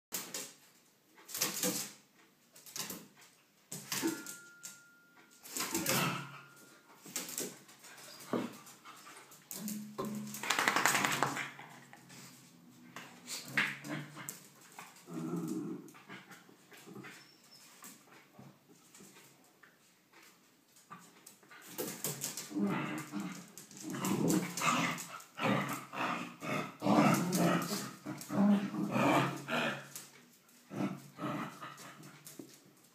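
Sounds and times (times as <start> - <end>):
dogs play-growling: 5.6 - 19.3, 20.8 - 32.7
dogs whining: 17.0 - 17.8.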